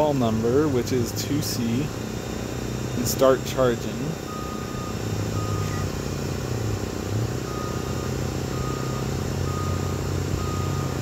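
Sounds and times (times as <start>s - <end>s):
low machinery drone: 0.0s - 11.0s
high beeps: 4.3s - 5.9s, 7.4s - 11.0s.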